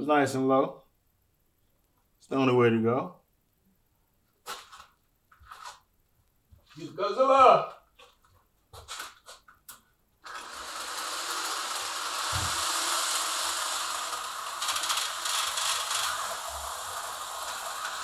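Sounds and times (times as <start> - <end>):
slot car motor whirring: 10.2 - 18.0.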